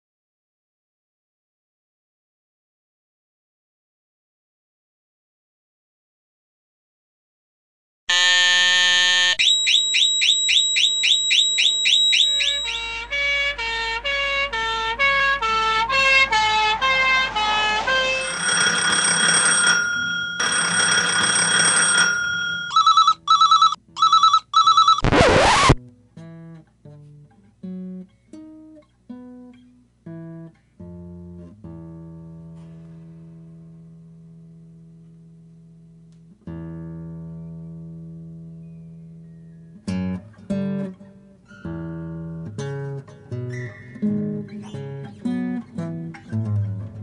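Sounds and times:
pulsing beeps: 0:24.8 - 0:25.8
electronic music: 0:25.0 - 0:25.8
plucked notes: 0:42.4 - 0:47.0.

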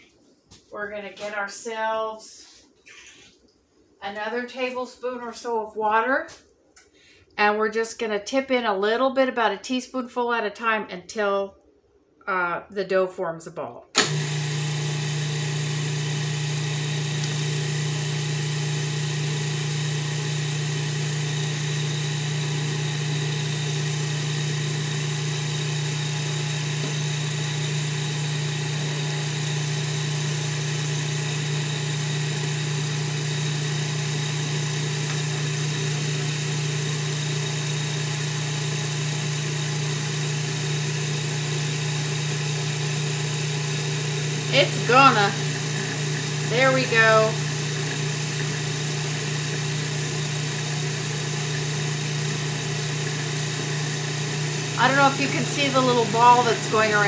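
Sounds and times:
food processor motor hum: 0:14.0 - 0:57.0.

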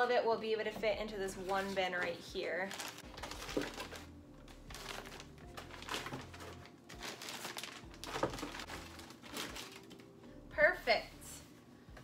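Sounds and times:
faint background music: 0:00.0 - 0:12.0
packets rustling and knocking: 0:02.7 - 0:10.1.

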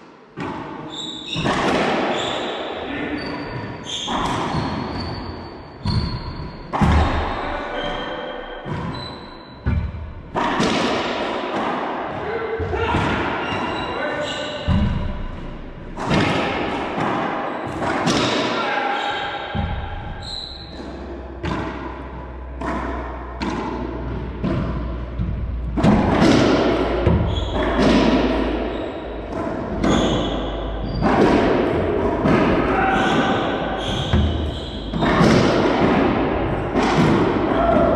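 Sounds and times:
racquetball smacks echoing: 0:00.4 - 0:02.6, 0:08.6 - 0:13.8, 0:14.6 - 0:18.6, 0:19.3 - 0:37.9.

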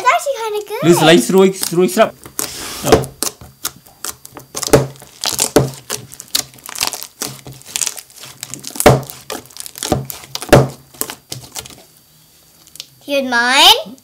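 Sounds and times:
slime crackling and squelching: 0:01.1 - 0:11.9.

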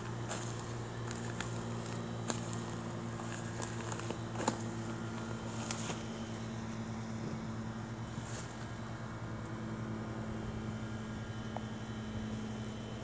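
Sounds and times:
footsteps on wood-chip mulch: 0:00.0 - 0:06.9, 0:08.0 - 0:08.8
low mechanical hum: 0:00.0 - 0:13.0.

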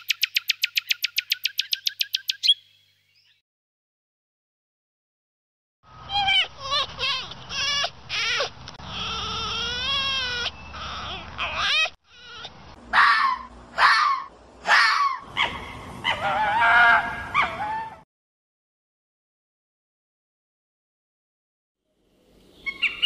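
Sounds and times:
fox yelping: 0:06.1 - 0:18.0.

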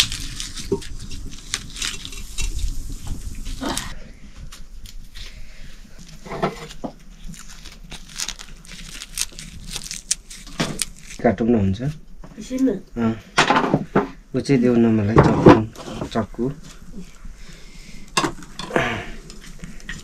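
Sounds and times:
onion skins crackling and tearing: 0:00.0 - 0:04.0, 0:05.9 - 0:11.6, 0:18.0 - 0:20.0.

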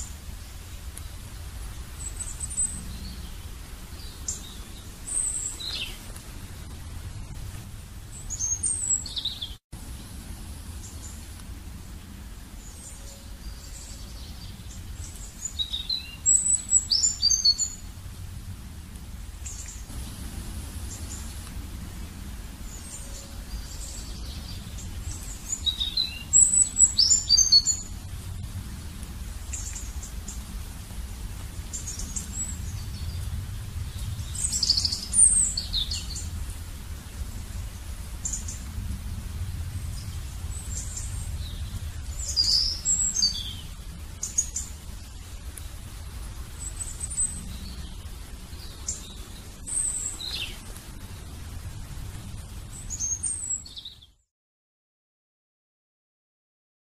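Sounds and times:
faint low rumble: 0:00.0 - 0:54.2
birds chirping and singing: 0:01.9 - 0:06.2, 0:08.1 - 0:09.6, 0:12.6 - 0:17.8, 0:22.6 - 0:30.5, 0:33.9 - 0:36.4, 0:39.8 - 0:45.8, 0:46.6 - 0:51.4.

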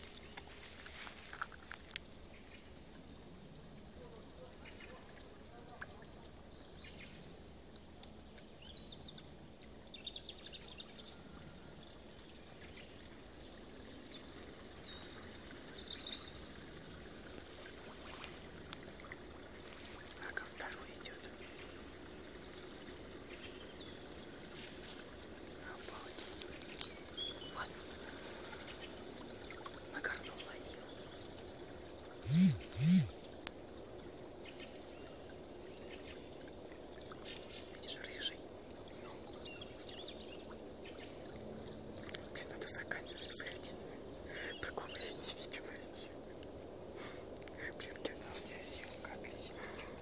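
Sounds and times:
shallow water trickling and sloshing: 0:00.0 - 0:32.2, 0:33.2 - 0:50.0
small high chirps and clicks: 0:25.7 - 0:27.6, 0:32.2 - 0:33.7.

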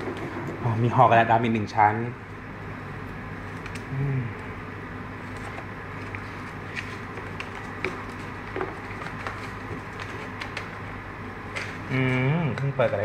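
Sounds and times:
steady low hum: 0:00.0 - 0:13.0
paper rustling and crinkling: 0:05.2 - 0:10.7.

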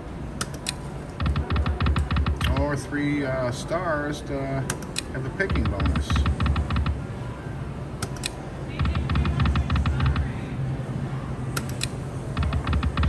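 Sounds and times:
slot machine reels clicking: 0:11.6 - 0:13.0.

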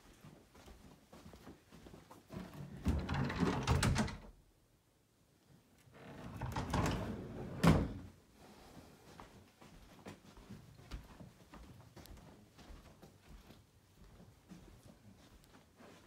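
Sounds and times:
closet door rumbling open: 0:02.4 - 0:04.4, 0:05.9 - 0:08.1.

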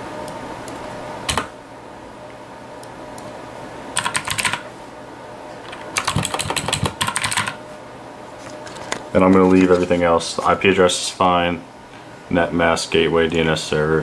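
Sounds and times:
computer keyboard typing: 0:04.0 - 0:04.6, 0:05.9 - 0:07.6.

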